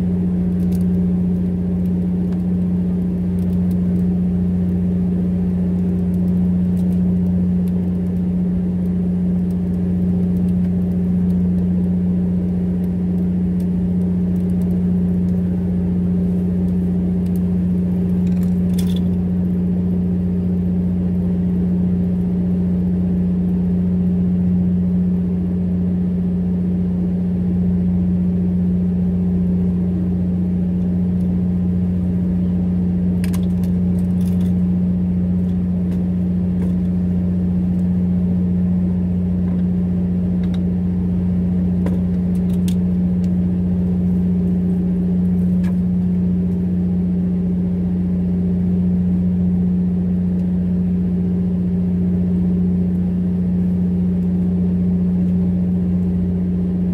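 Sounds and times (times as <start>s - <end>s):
boat engine humming: 29.2s - 47.6s.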